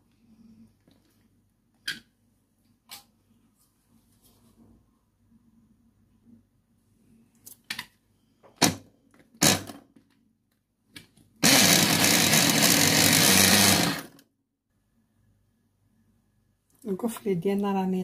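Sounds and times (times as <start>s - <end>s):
electric mini chopper grinding: 11.4s - 14.2s.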